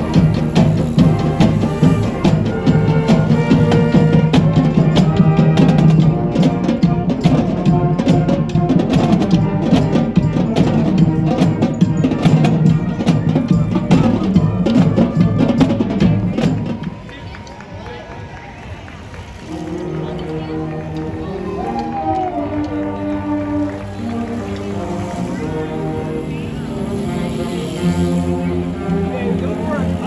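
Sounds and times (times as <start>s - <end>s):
music with drums and percussion: 0.0s - 17.2s.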